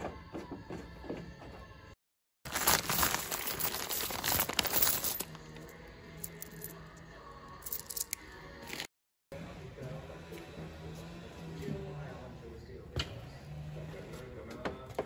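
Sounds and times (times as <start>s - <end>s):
plastic bag crinkling: 2.5s - 5.2s.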